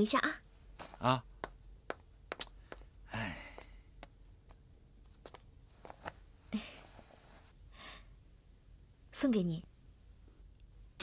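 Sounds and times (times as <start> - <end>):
soft rustles: 0.6 - 1.0, 4.5 - 7.6.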